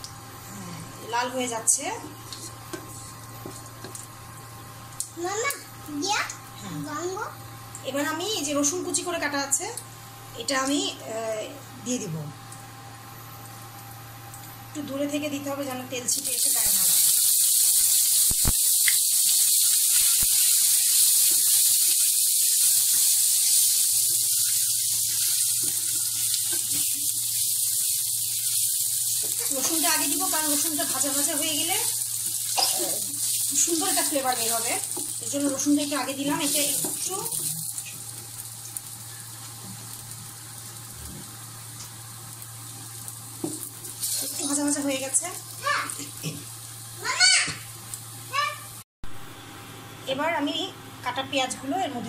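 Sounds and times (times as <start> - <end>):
steady low hum: 0.0 - 16.9
garlic sizzling in oil: 1.0 - 9.6, 13.0 - 48.8.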